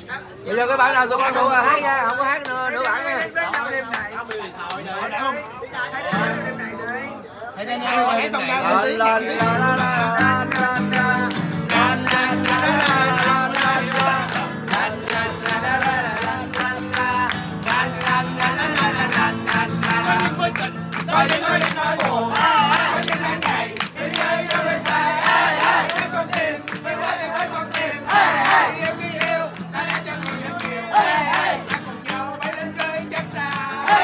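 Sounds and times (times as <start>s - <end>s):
people clapping in time: 1.9s - 5.3s, 10.1s - 34.0s
group singing: 8.6s - 34.0s
guitar music: 9.3s - 34.0s.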